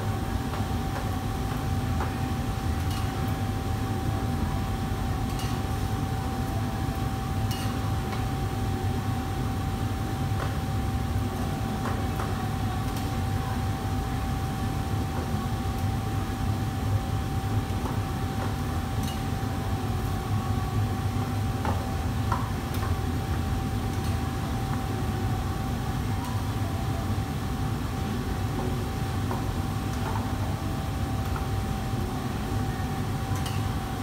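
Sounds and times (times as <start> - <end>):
kitchen range and hood roaring: 0.0 - 34.0.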